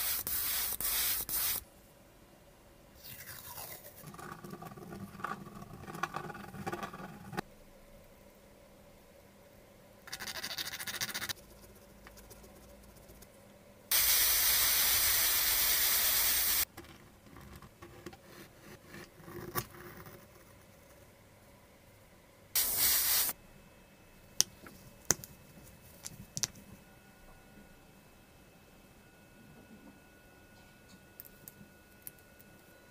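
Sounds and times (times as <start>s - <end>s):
aerosol spray can hissing: 0.0s - 1.6s, 13.9s - 16.6s, 22.6s - 23.4s.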